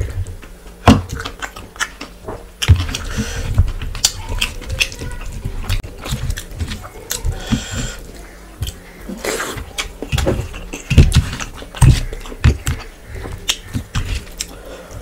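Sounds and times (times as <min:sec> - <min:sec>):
food squelching by hand: 0:00.0 - 0:15.0
wet chewing and lip smacks: 0:01.2 - 0:03.0.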